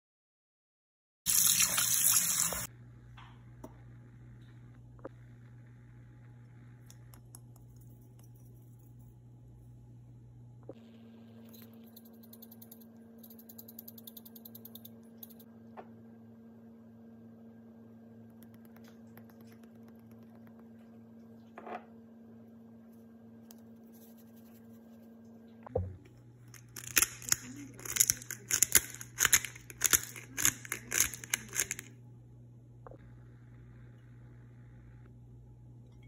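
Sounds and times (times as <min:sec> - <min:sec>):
electrical hum: 0:01.3 - 0:36.0
dried herbs rattling from jar: 0:26.6 - 0:31.9.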